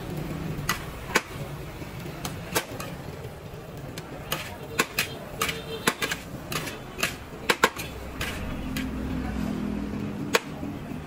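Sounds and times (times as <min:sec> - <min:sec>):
metal spatula scraping steel wok: 0:04.2 - 0:09.6
passing vehicle engine hum: 0:07.9 - 0:11.0.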